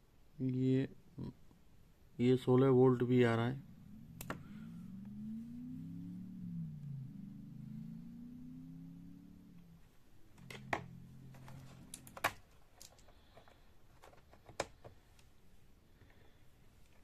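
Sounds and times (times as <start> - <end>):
low hum: 1.1 - 13.3.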